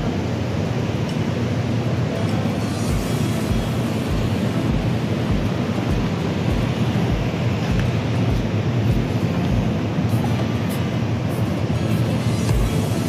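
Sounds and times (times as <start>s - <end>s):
low rumble of indoor hall: 0.0s - 13.0s
muffled bass beat thumping: 2.9s - 10.8s, 12.5s - 13.0s.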